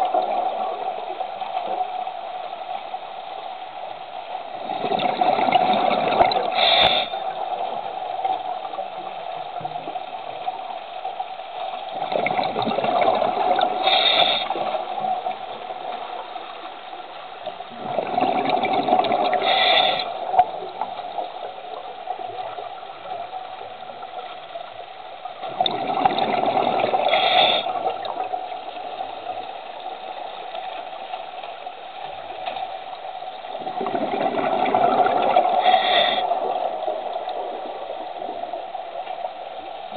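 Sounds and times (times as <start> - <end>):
exhaled bubbles gurgling: 0.0 - 2.6, 4.4 - 39.9
regulator hiss: 6.5 - 8.4, 13.7 - 15.9, 19.3 - 20.4, 27.0 - 27.9, 35.5 - 38.6.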